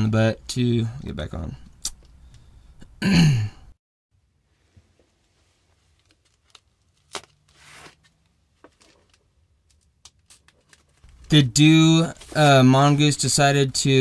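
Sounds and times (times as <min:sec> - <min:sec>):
foam wrap rustling: 0:10.2 - 0:12.7.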